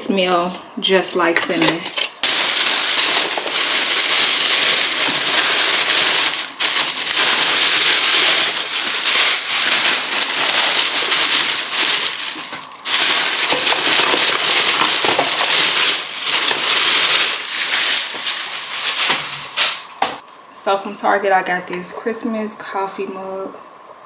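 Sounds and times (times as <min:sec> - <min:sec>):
plastic bags rustling: 0:01.4 - 0:20.2.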